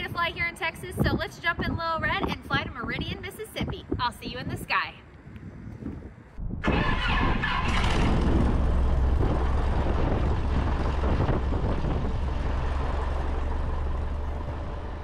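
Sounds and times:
propeller plane engine idling: 6.6 - 15.0.

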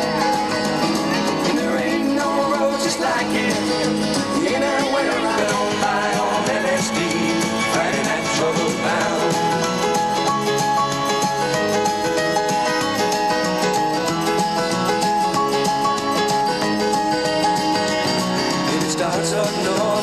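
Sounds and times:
background music: 0.0 - 20.0.

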